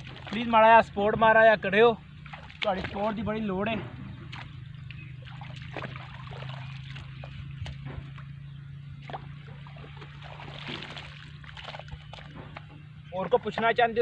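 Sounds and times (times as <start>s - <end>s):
low hum: 0.0s - 13.6s
hoe scraping mud: 9.0s - 12.9s.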